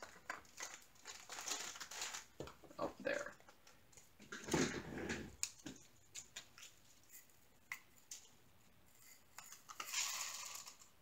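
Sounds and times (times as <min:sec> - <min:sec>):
plastic bag rustling: 0:00.0 - 0:02.6.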